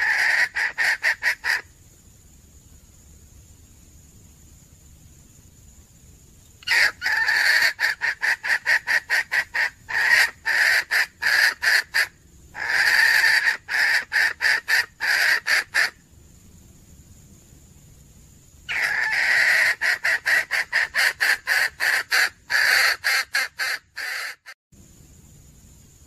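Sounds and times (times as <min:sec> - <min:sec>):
hen cackling: 0:00.0 - 0:01.7, 0:06.6 - 0:16.0, 0:18.7 - 0:24.6.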